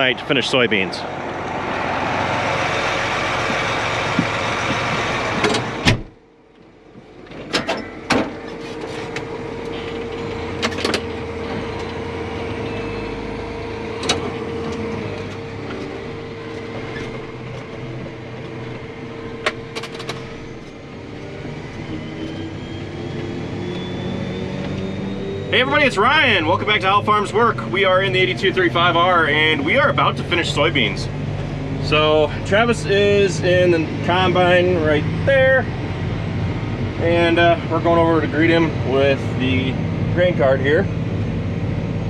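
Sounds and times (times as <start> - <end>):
tractor engine running: 0.0 - 42.0
sharp clicks and knocks: 3.4 - 6.0.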